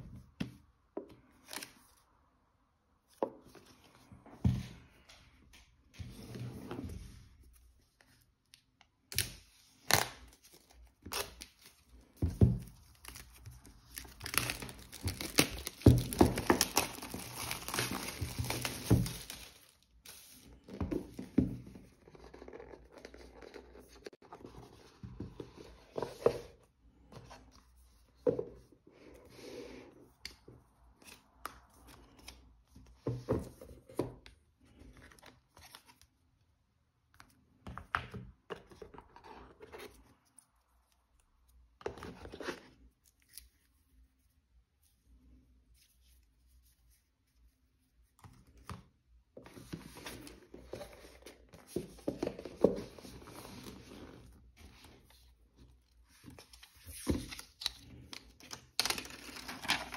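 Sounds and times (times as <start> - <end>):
packaging tearing and crinkling: 13.1 - 20.4, 57.3 - 59.9.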